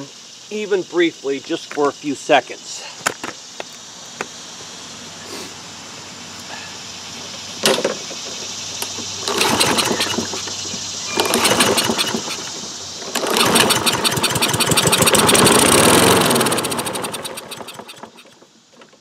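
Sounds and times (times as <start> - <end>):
lawn mower engine firing: 7.6 - 19.0.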